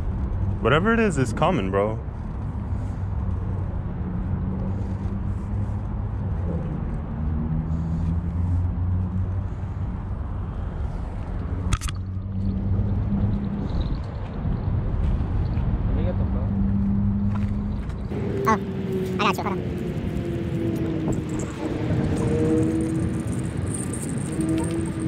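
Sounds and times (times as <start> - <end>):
engine running: 17.3 - 25.0.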